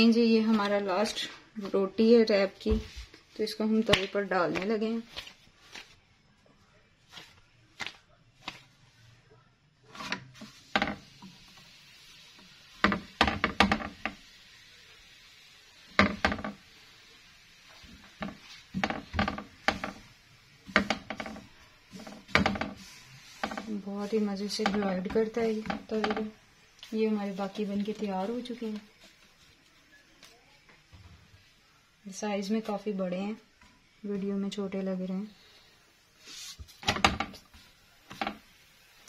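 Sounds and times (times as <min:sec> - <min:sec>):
knocks and clatters on a griddle: 0:10.0 - 0:11.4, 0:12.4 - 0:14.3, 0:15.9 - 0:16.8, 0:17.7 - 0:23.8, 0:24.4 - 0:26.4, 0:36.7 - 0:38.5.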